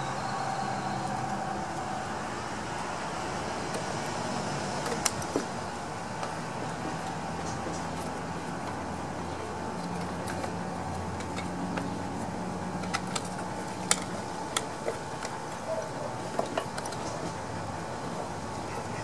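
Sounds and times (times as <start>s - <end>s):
low hum: 0.0s - 4.7s.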